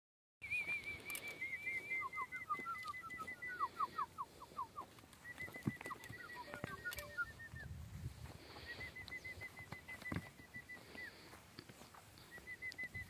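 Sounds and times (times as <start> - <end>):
bird chirping: 0.4 - 7.8, 8.6 - 11.4, 12.2 - 13.0
bird downward-slurred notes: 6.1 - 7.4.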